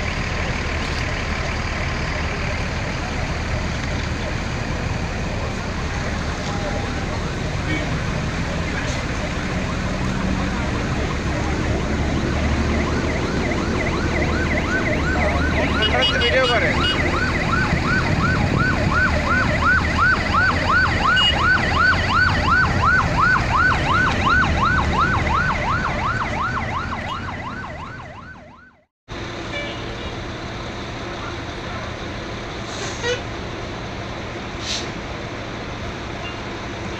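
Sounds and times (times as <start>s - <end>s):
emergency siren wailing: 0.0s - 28.9s.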